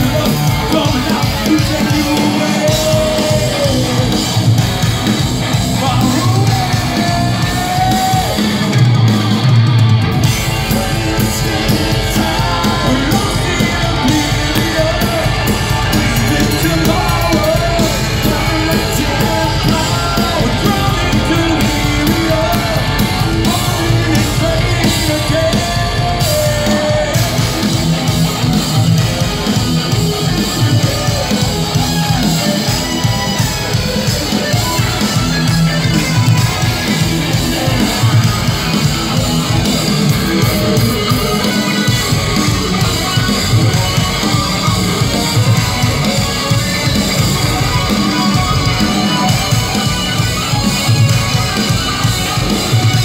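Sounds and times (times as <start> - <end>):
man singing: 0.0 - 4.7, 5.5 - 8.8, 10.2 - 28.0, 39.1 - 50.0
metal band playing live: 0.0 - 53.0.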